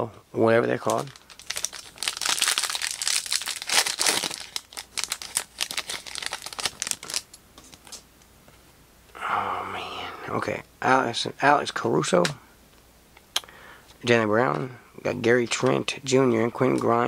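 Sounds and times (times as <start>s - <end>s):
foil wrapper crinkling: 0.8s - 8.0s.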